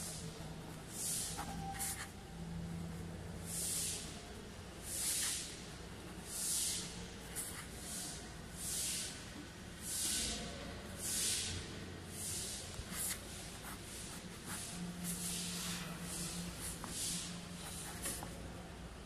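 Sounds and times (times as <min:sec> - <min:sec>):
faint low hum: 0:00.0 - 0:19.0
pen writing on paper: 0:01.2 - 0:02.1.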